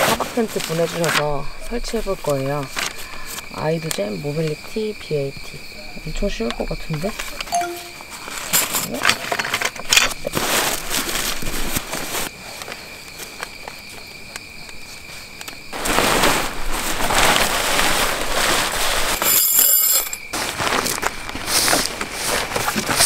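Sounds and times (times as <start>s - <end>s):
insect chirring: 0.6s - 10.4s
nylon fabric crinkling: 10.3s - 12.3s, 15.7s - 19.2s.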